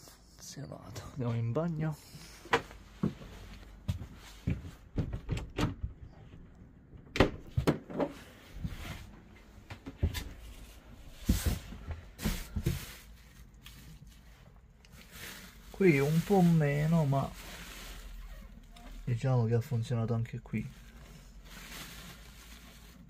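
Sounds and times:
person moving about: 0:01.0 - 0:19.1
door knocks and clunks: 0:04.5 - 0:06.4, 0:07.0 - 0:08.2
plastic film rustling: 0:10.3 - 0:19.4, 0:20.3 - 0:23.0.

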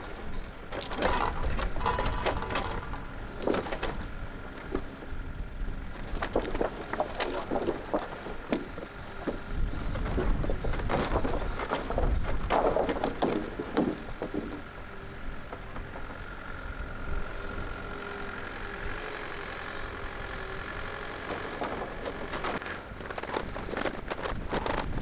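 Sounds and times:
excavator whining: 0:00.0 - 0:25.0
logs knocking and clattering: 0:00.7 - 0:04.9, 0:06.0 - 0:14.7.

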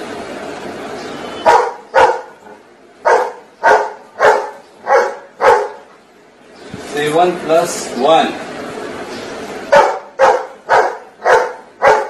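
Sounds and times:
dog barking: 0:01.4 - 0:02.4, 0:03.0 - 0:05.9, 0:09.7 - 0:12.0.

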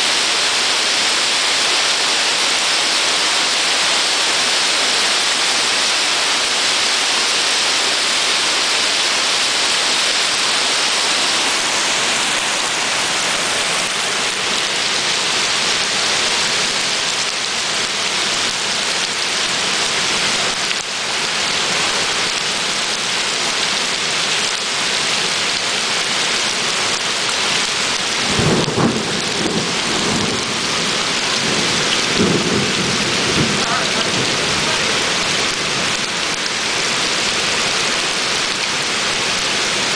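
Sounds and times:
torrential rain on paving: 0:00.0 - 0:39.9
rolling thunder: 0:28.2 - 0:35.0.

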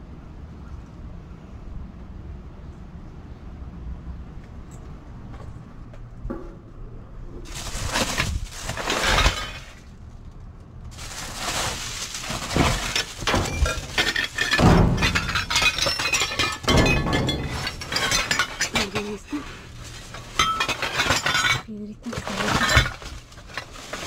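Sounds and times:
plastic packaging rustling: 0:07.5 - 0:09.8, 0:10.9 - 0:24.0
hard items clinking: 0:10.9 - 0:24.0.

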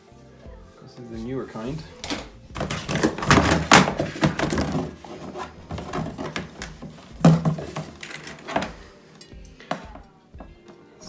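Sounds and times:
heavy thunk: 0:02.0 - 0:05.1
knocks and clatter: 0:02.0 - 0:08.8.

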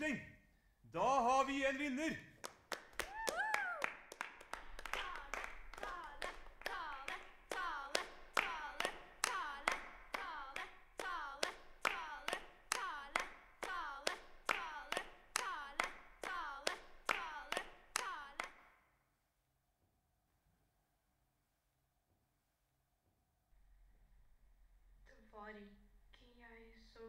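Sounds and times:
hands clapping: 0:01.4 - 0:18.8.

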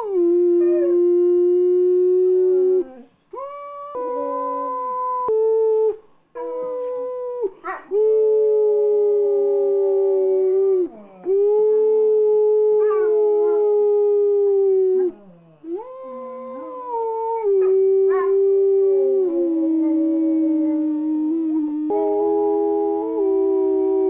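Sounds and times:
dog howling: 0:03.9 - 0:05.4, 0:06.4 - 0:24.0.

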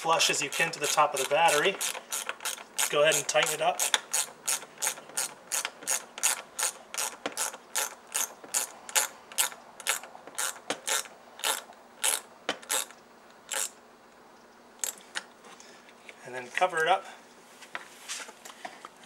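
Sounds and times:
ratchet wrench clicking: 0:00.4 - 0:12.9, 0:13.5 - 0:13.8, 0:14.8 - 0:15.0.

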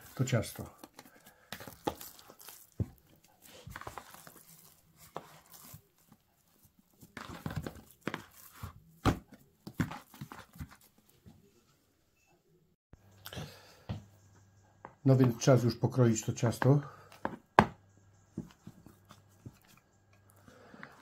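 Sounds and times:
bread dough slapping and squelching: 0:01.3 - 0:06.2.

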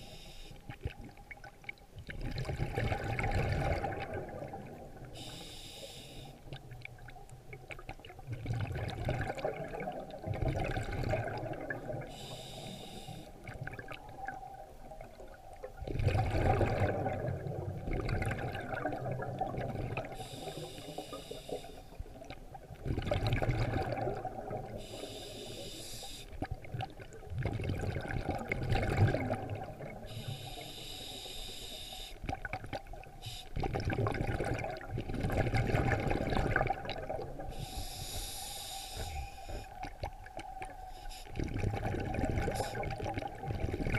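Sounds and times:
diver inhaling through regulator: 0:00.0 - 0:00.6, 0:05.2 - 0:06.4, 0:12.1 - 0:13.4, 0:20.1 - 0:22.0, 0:24.8 - 0:26.4, 0:30.0 - 0:32.2, 0:33.2 - 0:33.6, 0:37.5 - 0:39.8, 0:40.9 - 0:41.5, 0:42.4 - 0:43.0
bubbling exhaled air: 0:02.2 - 0:05.4, 0:08.2 - 0:14.4, 0:15.8 - 0:31.1, 0:32.2 - 0:40.2, 0:41.0 - 0:43.9.

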